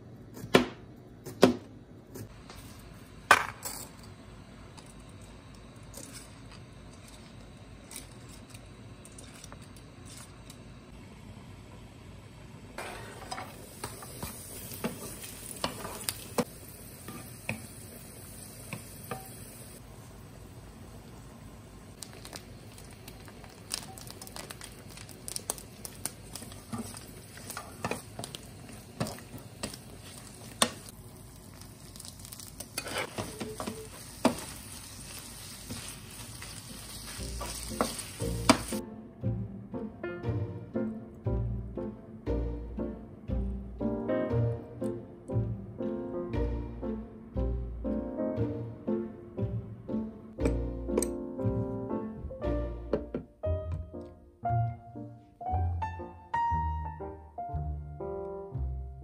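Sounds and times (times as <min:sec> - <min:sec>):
greens sizzling in oil: 0:12.8 - 0:38.8.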